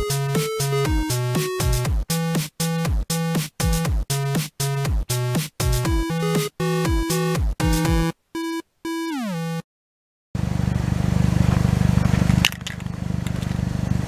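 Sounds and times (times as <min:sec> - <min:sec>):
chiptune electronic music: 0:00.0 - 0:09.6
car engine idling: 0:10.4 - 0:14.0.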